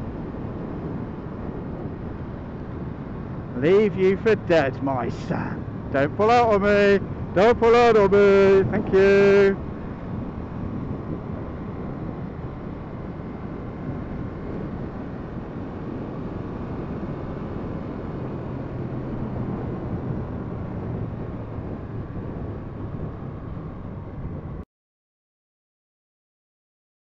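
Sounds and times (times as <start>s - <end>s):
wind and road noise: 0.0s - 24.7s.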